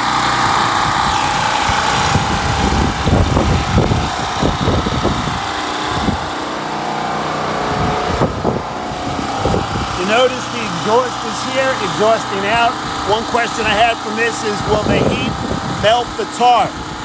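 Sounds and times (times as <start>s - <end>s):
generator engine running: 0.0s - 17.0s
wind buffeting microphone: 0.4s - 6.5s, 7.6s - 10.0s, 14.6s - 16.2s.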